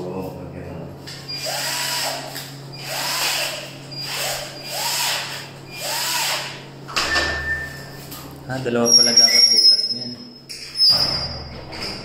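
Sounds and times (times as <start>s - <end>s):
electric drill boring into metal: 1.4s - 2.2s, 2.8s - 6.6s.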